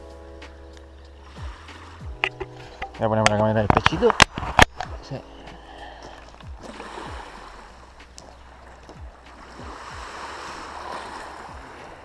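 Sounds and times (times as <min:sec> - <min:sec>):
small waves lapping on pebbles: 0:03.8 - 0:12.0.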